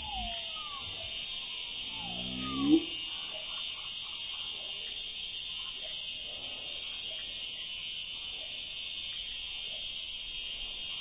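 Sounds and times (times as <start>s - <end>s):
steady high hiss: 0.0s - 11.0s.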